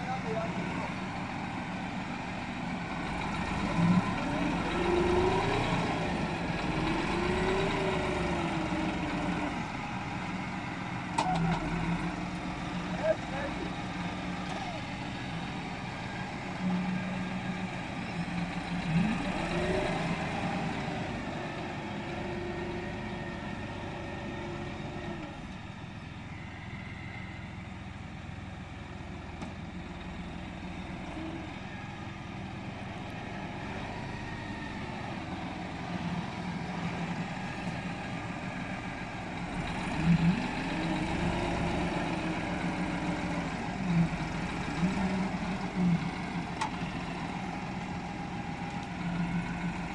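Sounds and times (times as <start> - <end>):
tractor diesel engine revving: 0.0 - 25.6, 28.7 - 49.9.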